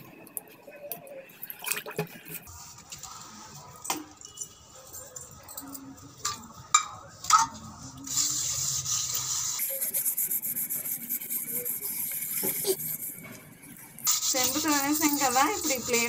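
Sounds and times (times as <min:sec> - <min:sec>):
hand rubbing salt on copper: 0:08.1 - 0:13.3, 0:14.1 - 0:16.0.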